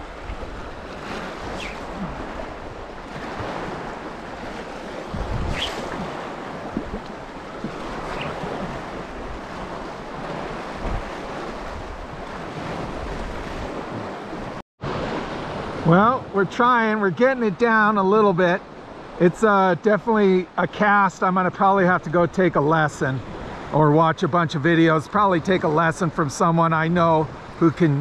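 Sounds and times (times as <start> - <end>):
waves lapping against rocks: 0.0 - 14.2
wind on microphone: 0.0 - 15.8.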